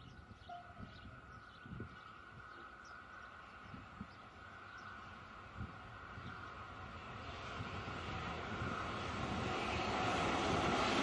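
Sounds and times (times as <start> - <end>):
small birds chirping: 0.0 - 5.2
distant electric locomotive whine: 0.0 - 11.0.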